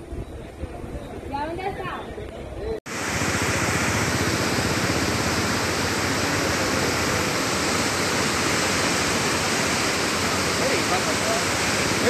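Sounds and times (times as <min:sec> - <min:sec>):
river rushing: 0:02.9 - 0:12.0.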